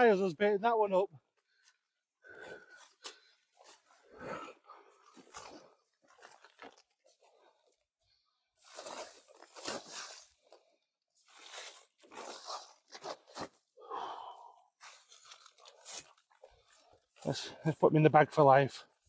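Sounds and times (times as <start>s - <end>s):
crunching and rustling: 5.0s - 7.3s.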